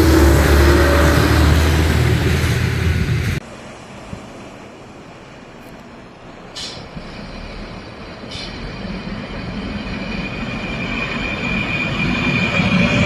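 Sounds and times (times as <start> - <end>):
diesel railcar approaching: 0.0 - 13.0
brief high hisses: 6.6 - 6.9
high wheel squeal: 6.6 - 13.0.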